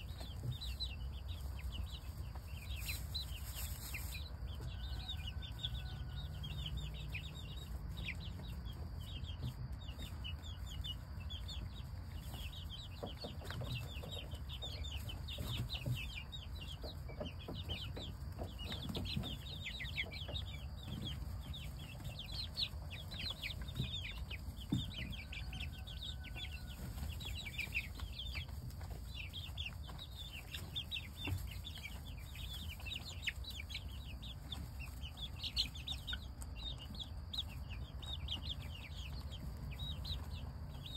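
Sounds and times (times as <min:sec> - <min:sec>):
chicks peeping: 0:00.0 - 0:40.9
scratching in straw: 0:01.2 - 0:06.1.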